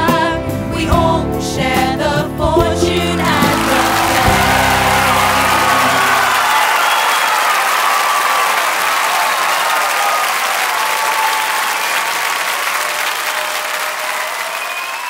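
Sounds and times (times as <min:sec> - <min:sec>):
audience applauding: 0:02.8 - 0:15.0.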